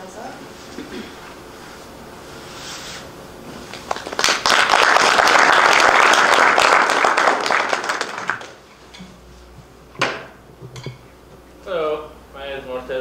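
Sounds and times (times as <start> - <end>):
audience applause: 3.9 - 8.6.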